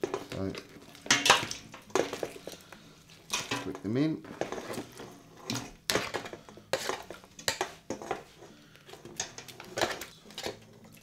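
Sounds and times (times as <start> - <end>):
metal utensil scraping metal tray: 3.3 - 10.7.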